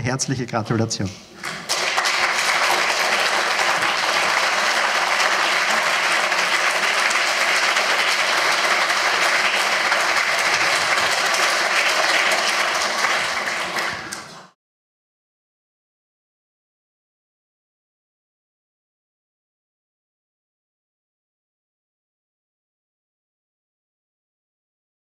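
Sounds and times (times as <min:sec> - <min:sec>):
audience applauding: 0:01.4 - 0:14.6.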